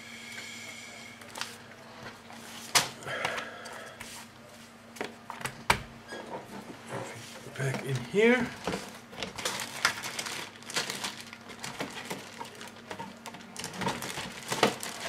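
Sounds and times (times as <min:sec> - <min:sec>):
faint steady hum: 0:00.0 - 0:15.0
plastic parts and paper rustling: 0:06.3 - 0:15.0.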